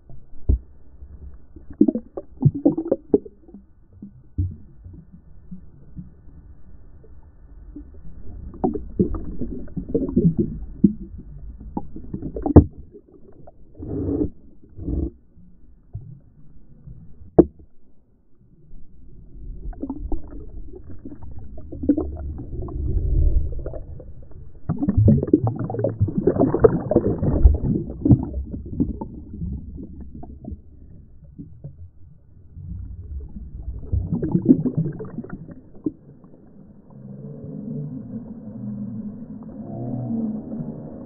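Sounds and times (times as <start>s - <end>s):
muffled seawater sloshing: 18.6s - 36.4s.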